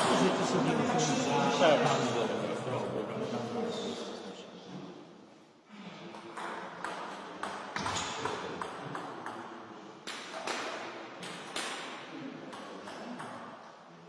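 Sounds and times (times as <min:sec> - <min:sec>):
table tennis ball bouncing: 0:06.2 - 0:09.5, 0:10.1 - 0:13.6.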